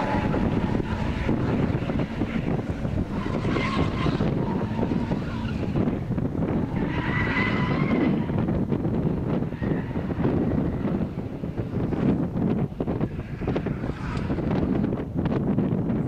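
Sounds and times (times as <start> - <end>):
tyres squealing: 0.0 - 8.6, 9.3 - 11.0
car engine at high revs: 0.0 - 16.0.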